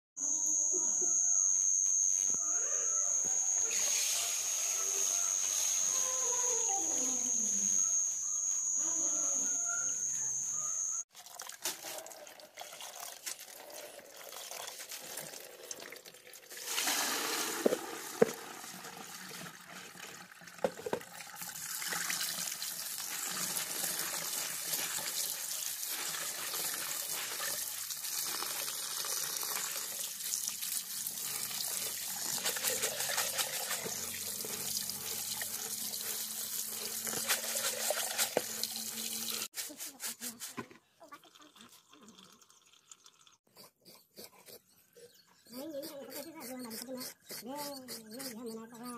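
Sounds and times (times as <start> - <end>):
water splashing on rice: 16.5 - 18.2.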